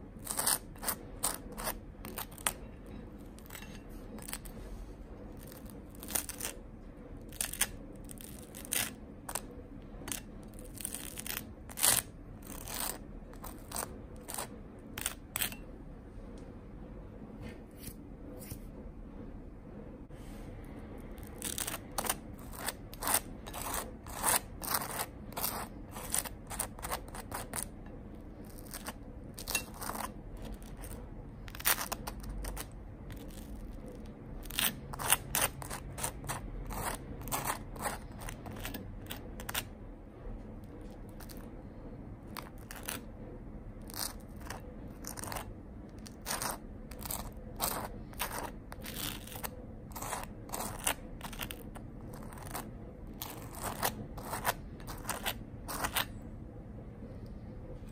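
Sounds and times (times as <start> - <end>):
knife scraping butter on toast: 0.2 - 4.7, 5.4 - 6.6, 7.2 - 15.6, 21.1 - 39.7, 40.8 - 41.5, 43.8 - 56.2.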